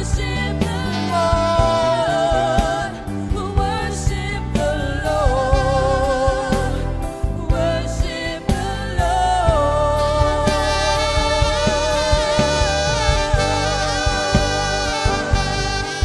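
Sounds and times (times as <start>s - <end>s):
singer holding vibrato notes: 0.0s - 3.5s, 9.1s - 16.0s
steady drum beat: 0.0s - 16.0s.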